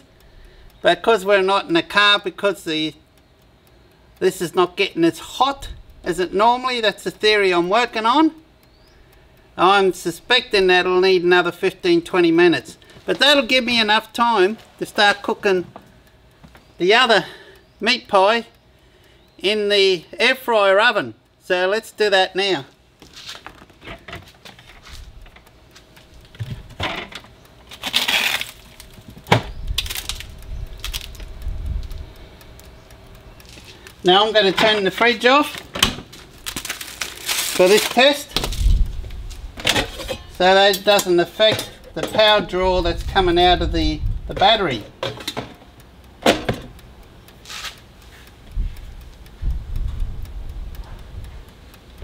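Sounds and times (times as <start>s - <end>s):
rustling and scraping: 23.0s - 29.2s, 35.5s - 42.4s, 47.4s - 48.8s
objects knocking and clicking: 26.2s - 27.4s, 44.9s - 46.8s
dull low thumps: 28.9s - 33.4s, 38.4s - 39.6s, 41.6s - 44.8s, 48.4s - 51.6s.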